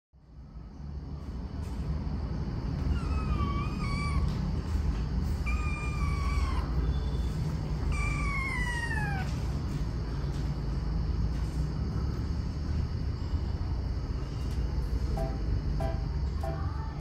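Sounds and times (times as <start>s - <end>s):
kitten meowing: 2.8s - 4.4s, 5.4s - 7.0s, 7.8s - 9.4s.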